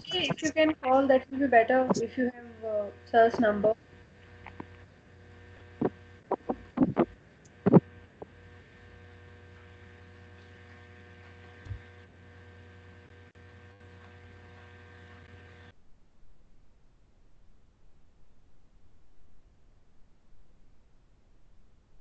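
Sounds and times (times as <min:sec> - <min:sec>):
electrical hum: 0:00.0 - 0:16.5
faint steady tones: 0:00.0 - 0:16.5.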